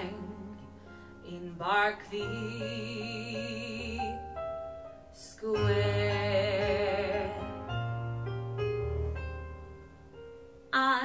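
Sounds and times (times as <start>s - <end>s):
woman singing a slow ballad: 0.0s - 4.4s, 5.1s - 7.8s, 10.7s - 11.0s
piano backing track: 0.0s - 11.0s.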